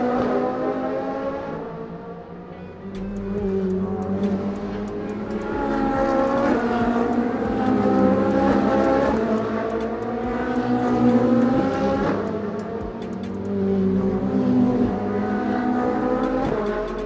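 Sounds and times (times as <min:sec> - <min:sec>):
car engine revving: 0:00.0 - 0:17.0
steady ticking clicks: 0:02.9 - 0:15.0, 0:16.0 - 0:17.0.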